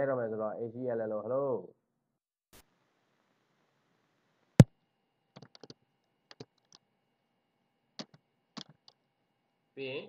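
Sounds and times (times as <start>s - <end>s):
computer keyboard typing: 5.4s - 5.7s, 6.3s - 6.8s, 8.0s - 9.0s.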